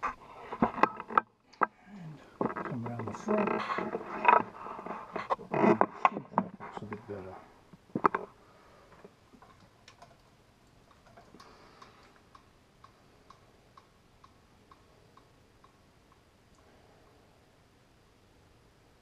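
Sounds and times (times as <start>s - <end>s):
faint regular ticking: 8.9s - 17.2s.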